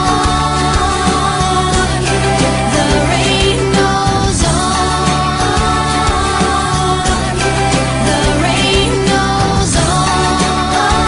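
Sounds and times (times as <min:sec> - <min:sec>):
background music with beat: 0:00.0 - 0:11.0.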